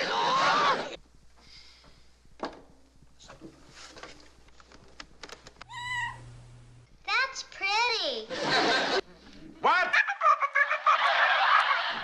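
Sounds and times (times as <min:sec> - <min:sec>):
short high-pitched cry: 0:05.7 - 0:06.2.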